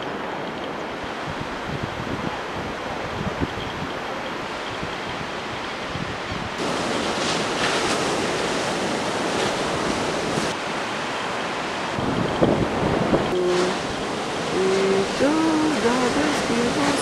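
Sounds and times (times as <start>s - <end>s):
wind on microphone: 0.0s - 10.6s, 11.6s - 17.0s
sea surf washing: 0.0s - 17.0s.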